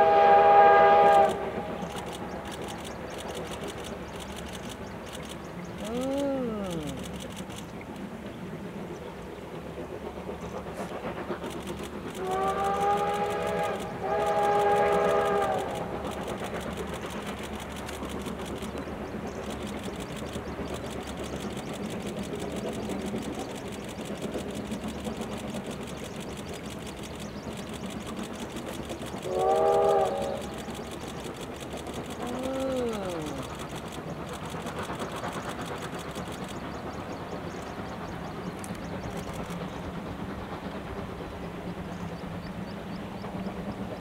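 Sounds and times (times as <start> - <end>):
steam locomotive whistle blasts: 0.0 - 2.0, 12.2 - 16.0, 29.3 - 30.6
train running: 0.0 - 44.0.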